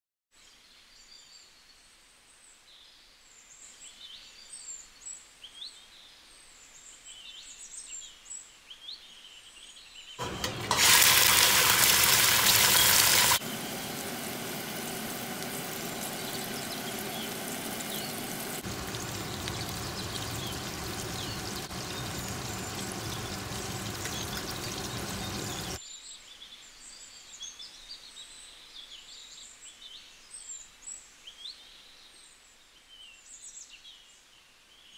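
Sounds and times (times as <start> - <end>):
birds chirping: 10.2 - 25.8
chicken frying in hot oil: 10.2 - 25.8.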